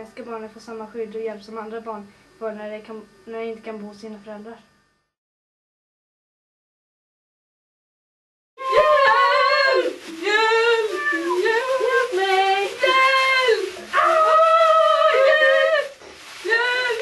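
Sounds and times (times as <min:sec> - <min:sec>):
child singing drawn-out phrases: 0:08.6 - 0:15.9.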